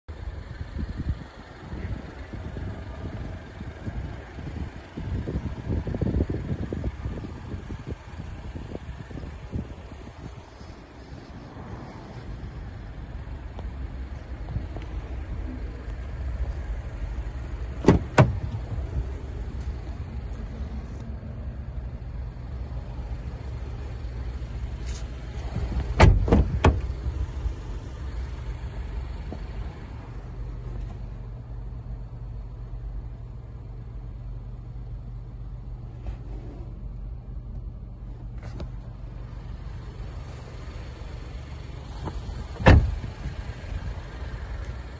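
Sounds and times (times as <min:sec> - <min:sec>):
low rumble: 0:00.3 - 0:44.6
car door clicks and knocks: 0:17.7 - 0:18.9, 0:25.6 - 0:26.9, 0:42.0 - 0:43.1.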